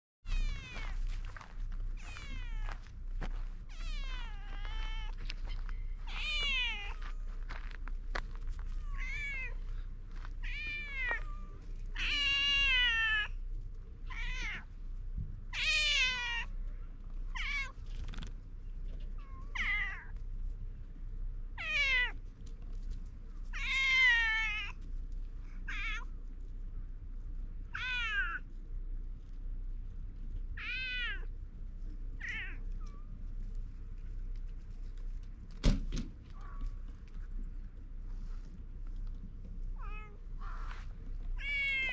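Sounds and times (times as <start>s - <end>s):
cat meowing: 0.3s - 1.1s, 2.0s - 2.8s, 3.7s - 7.0s, 8.8s - 9.6s, 10.4s - 13.3s, 15.5s - 16.5s, 17.3s - 17.8s, 23.5s - 24.7s, 27.7s - 28.4s, 30.6s - 31.3s, 32.2s - 33.0s, 39.8s - 40.8s, 41.4s - 41.9s.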